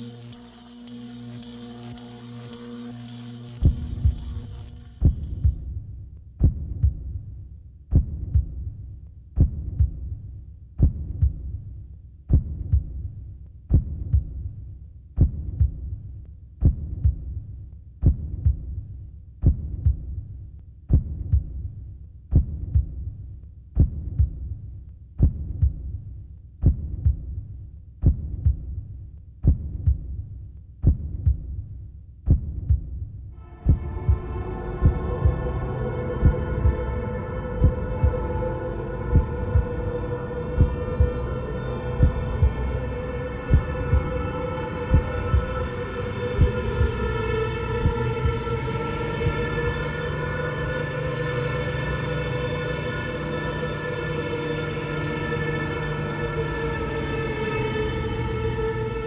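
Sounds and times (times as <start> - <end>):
low hum: 0.0 - 11.7, 33.4 - 59.0
heartbeat thumping: 3.6 - 23.2, 23.8 - 41.3, 42.0 - 47.1, 47.8 - 48.6.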